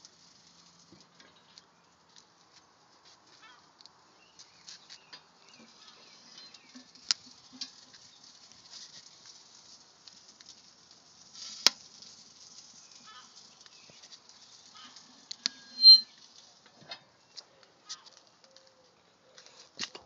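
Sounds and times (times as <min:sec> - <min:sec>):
charcoal fire crackling: 0:00.0 - 0:20.0
fire snapping sharply: 0:11.3 - 0:12.1.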